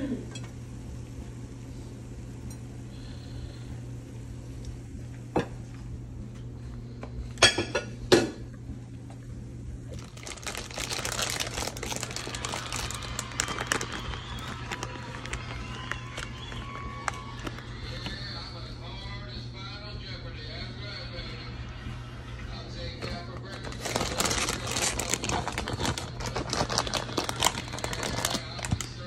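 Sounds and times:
plastic bag crinkling: 9.8s - 18.2s, 23.0s - 29.0s.

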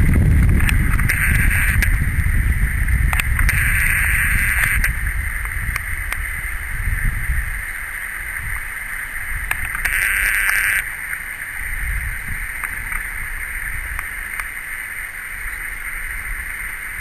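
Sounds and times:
wind rumbling on microphone: 0.0s - 17.0s
high-pitched drone: 0.6s - 2.2s, 3.4s - 5.0s.

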